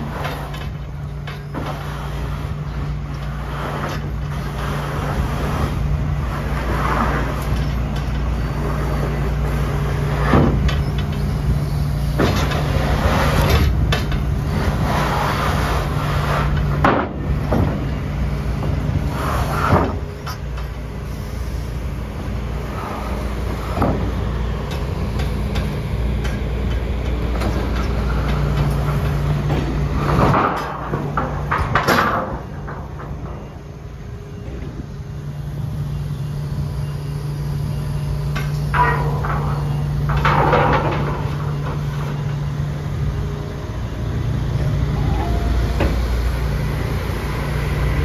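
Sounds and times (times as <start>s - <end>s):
excavator diesel engine running: 0.0s - 48.0s
metal clanks and knocks: 12.1s - 14.4s, 23.7s - 33.5s, 38.3s - 42.4s.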